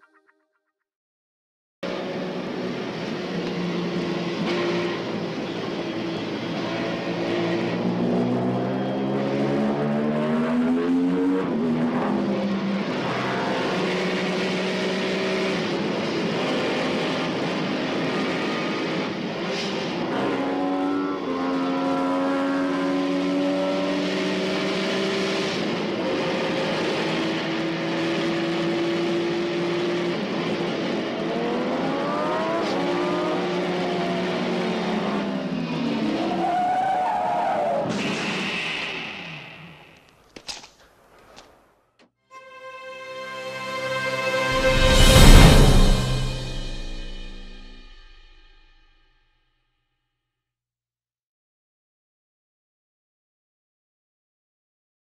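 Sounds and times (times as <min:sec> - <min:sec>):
vehicle engine running hard: 0:01.8 - 0:36.3
second engine sweeping up and down: 0:01.8 - 0:40.0.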